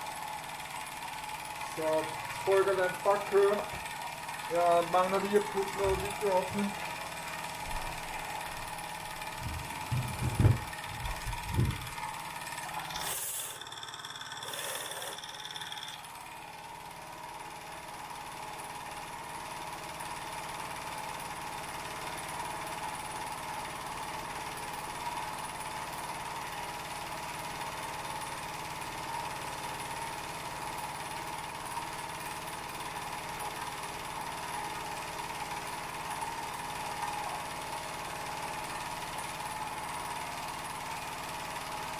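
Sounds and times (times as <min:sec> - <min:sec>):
toy steam engine running: 0:00.0 - 0:41.9
knocks: 0:09.4 - 0:10.7
steam hiss: 0:12.9 - 0:13.6, 0:14.4 - 0:15.2.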